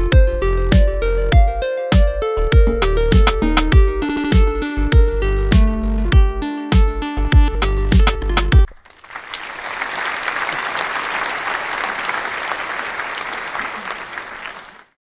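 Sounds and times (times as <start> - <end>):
music with strong beat: 0.0 - 8.7
crowd applause: 8.7 - 15.0.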